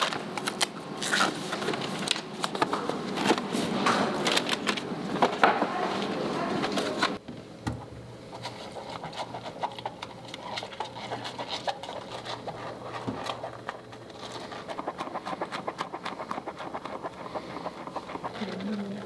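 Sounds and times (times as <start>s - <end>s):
bottle brush scrubbing a cup: 8.3s - 19.0s.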